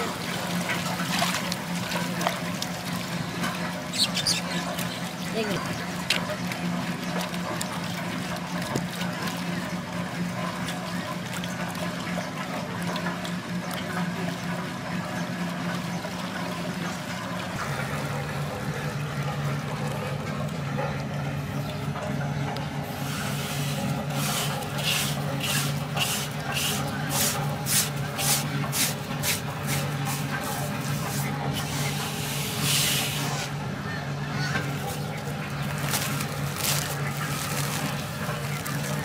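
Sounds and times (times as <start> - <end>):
motor hum: 0.0 - 39.0
water sloshing and trickling: 0.0 - 39.0.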